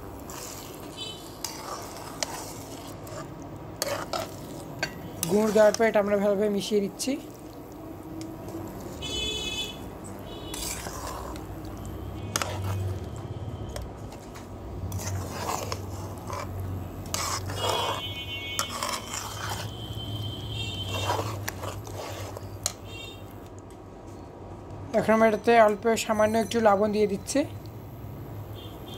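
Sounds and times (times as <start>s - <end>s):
metal spatula scraping a pan: 0.0s - 6.2s, 10.2s - 13.8s, 14.8s - 23.1s.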